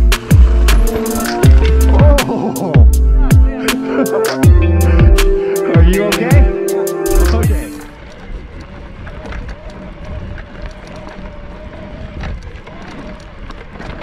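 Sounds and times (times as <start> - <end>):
tyres on dirt trail: 0.0 - 5.2, 7.5 - 14.0
wind on microphone: 7.5 - 14.0.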